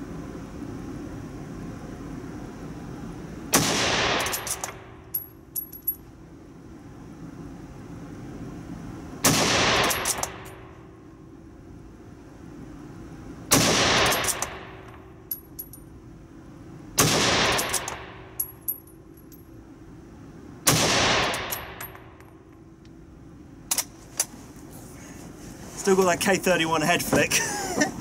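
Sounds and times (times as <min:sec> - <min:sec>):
rifle shots echoing: 0:03.5 - 0:04.6, 0:09.2 - 0:10.4, 0:13.5 - 0:14.8, 0:17.0 - 0:18.2, 0:20.7 - 0:21.8.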